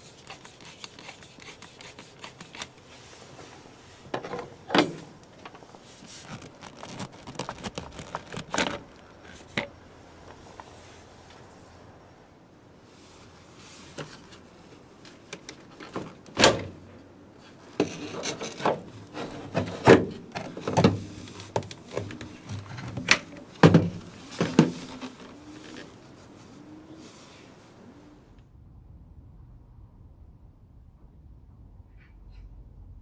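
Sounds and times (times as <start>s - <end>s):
plastic knocking and scraping: 6.1s - 9.7s, 17.8s - 25.8s.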